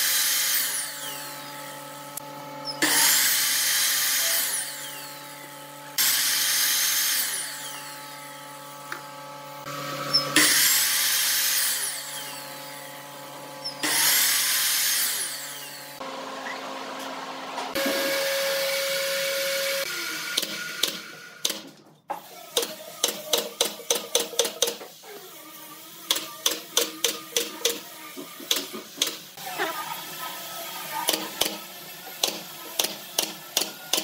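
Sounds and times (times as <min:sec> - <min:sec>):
miter saw cutting wood: 0:00.0 - 0:21.2.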